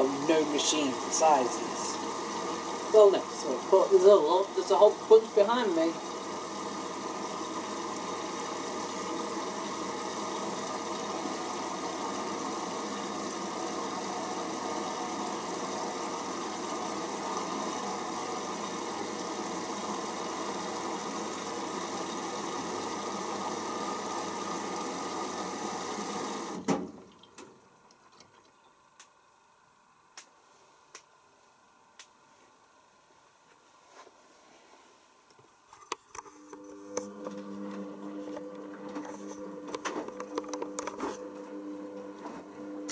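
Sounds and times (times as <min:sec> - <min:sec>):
washing machine water intake hiss: 0:00.0 - 0:26.9.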